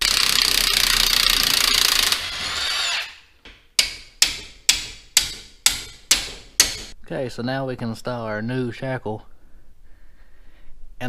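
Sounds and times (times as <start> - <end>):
impact wrench hammering: 0.0 - 7.0
hammer striking steel: 3.5 - 7.0.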